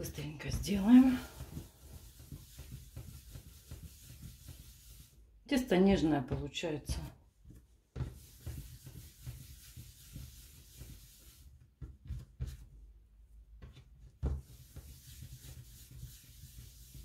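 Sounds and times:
hands rolling dough: 0.0s - 17.0s
soft thumps of dough: 0.5s - 17.0s.

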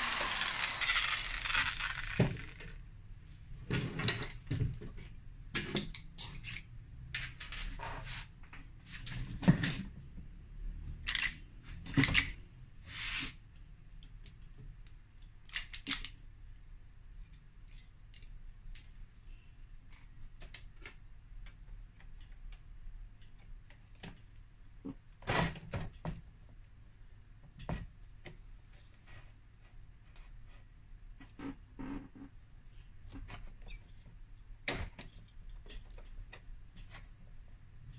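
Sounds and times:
short scrapes: 12.8s - 13.4s
light metal clicks and clinks: 17.3s - 19.4s.

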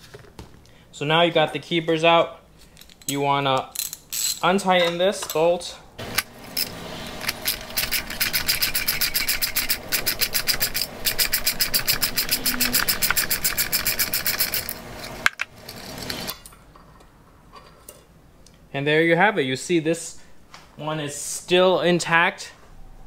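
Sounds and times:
socket ratchet clicking: 6.1s - 15.5s.

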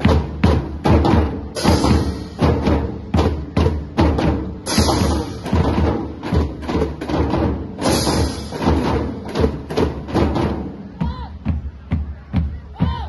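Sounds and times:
marching snare drums: 0.0s - 13.0s
bass drum beats: 8.1s - 13.0s.

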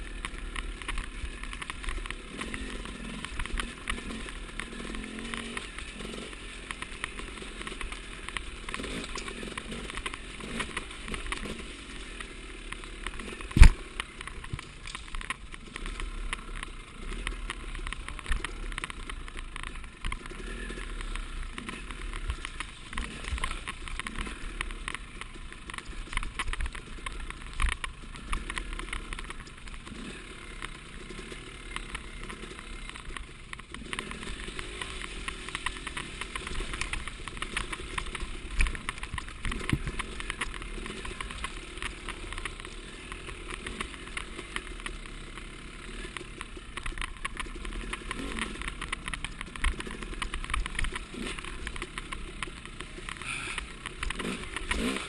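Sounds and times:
knocks and rattles from bike: 0.0s - 55.0s
motorcycle engine running: 0.0s - 55.0s.

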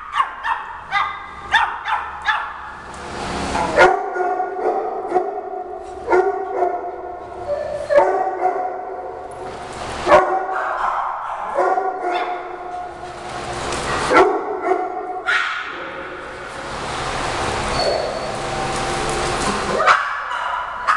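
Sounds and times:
small dogs barking: 0.0s - 2.8s, 3.6s - 9.2s, 10.0s - 16.1s, 19.6s - 20.9s.

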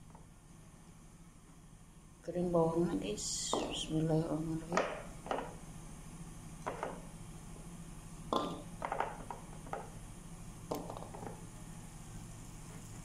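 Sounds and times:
faint steady hum: 0.0s - 13.0s
shallots knocking into a wok: 8.3s - 9.2s.

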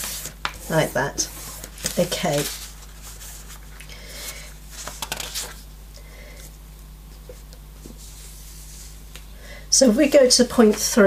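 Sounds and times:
paper rustling and sliding: 0.0s - 5.6s.

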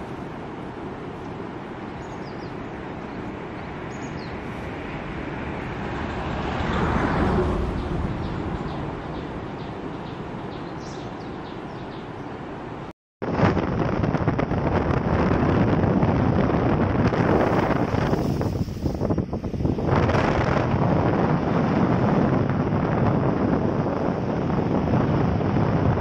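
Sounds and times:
outdoor noise: 0.0s - 26.0s
bird chirps: 3.9s - 4.4s, 7.7s - 12.2s
vehicle passing: 4.4s - 12.8s.

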